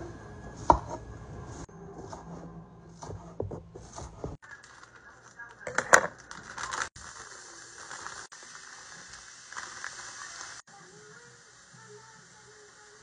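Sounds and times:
plastic bag crinkling: 4.5s - 10.4s
cauliflower sizzling on a griddle: 7.0s - 13.0s.

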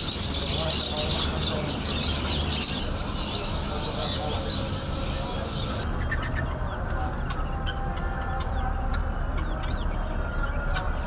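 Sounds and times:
lovebirds chattering: 0.0s - 11.0s.

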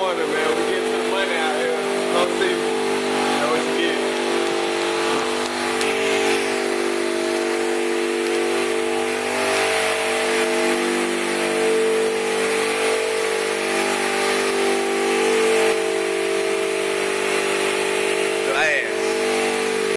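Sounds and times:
machinery droning: 0.0s - 19.9s.

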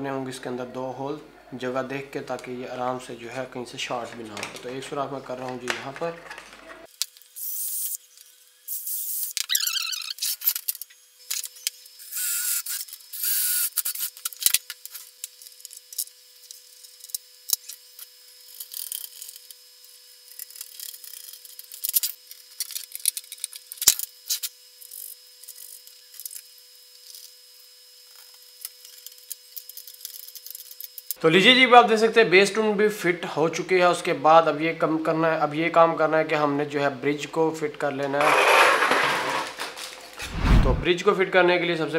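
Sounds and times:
cordless drill boring: 12.0s - 14.2s, 38.2s - 39.5s.

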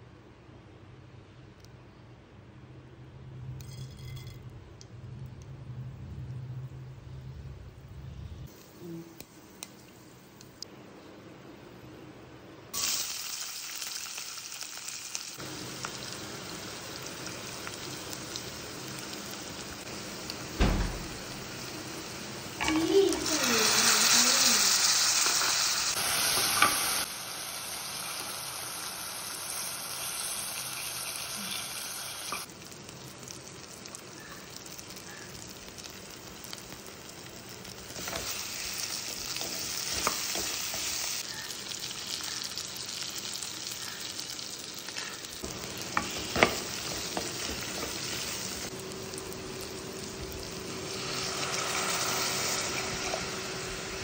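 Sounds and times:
vegetables sizzling in oil: 12.7s - 54.0s.

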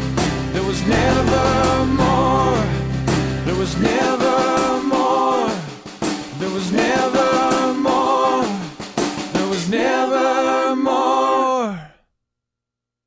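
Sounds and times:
drum kit with cymbals: 0.0s - 10.1s
man singing wordless phrases: 0.5s - 2.8s, 3.4s - 8.7s, 9.3s - 9.8s, 11.4s - 12.0s.

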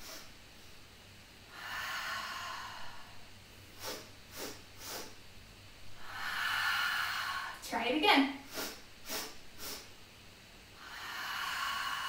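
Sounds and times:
quick sharp sniffs: 0.0s - 0.3s, 3.8s - 5.2s, 8.4s - 9.9s
woman breathing out slowly: 1.4s - 5.2s, 5.9s - 7.6s, 10.7s - 12.0s.

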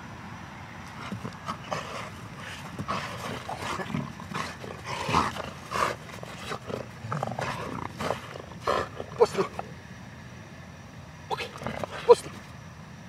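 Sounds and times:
dog growling: 1.0s - 9.8s, 11.3s - 12.5s.

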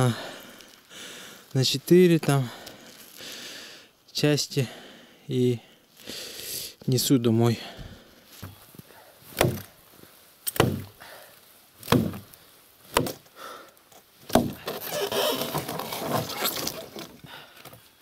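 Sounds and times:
axe chopping a tree trunk: 9.3s - 9.8s, 10.5s - 11.0s, 11.8s - 13.2s, 14.2s - 14.8s.

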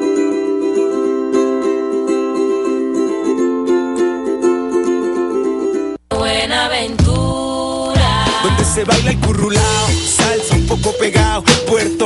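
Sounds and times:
picked plucked string melody: 0.0s - 6.3s.

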